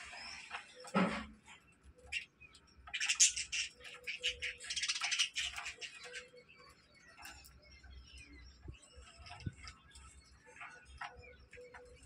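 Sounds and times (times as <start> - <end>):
budgerigars chirping and chattering: 2.0 - 12.0.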